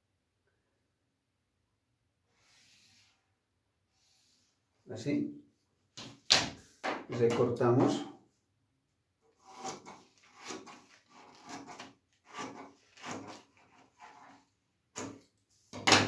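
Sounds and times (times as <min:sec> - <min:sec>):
scissors cutting paper: 0:09.4 - 0:14.4.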